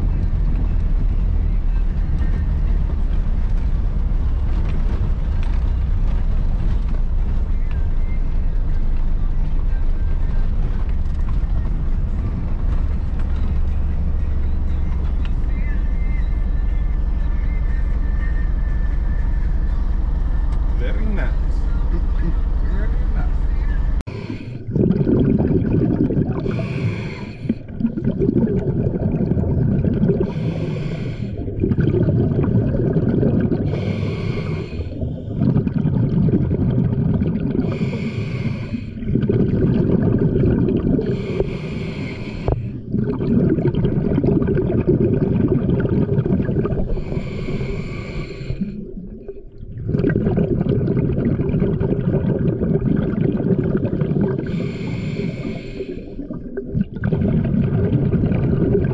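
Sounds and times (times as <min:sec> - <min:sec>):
regulator hissing inhale: 0:24.1 - 0:24.7, 0:26.4 - 0:27.8, 0:30.2 - 0:31.7, 0:33.6 - 0:35.5, 0:37.6 - 0:39.1, 0:40.9 - 0:43.0, 0:46.8 - 0:49.0, 0:54.3 - 0:56.4
bubbling exhaled air: 0:24.1 - 0:58.9.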